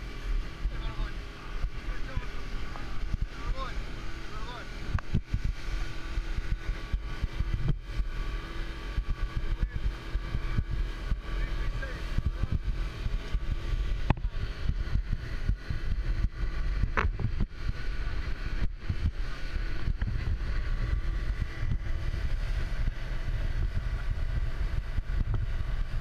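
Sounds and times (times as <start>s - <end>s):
outboard motor running: 0.0s - 26.0s
wind buffeting microphone: 0.0s - 26.0s
hull knocking on waves: 14.0s - 17.6s.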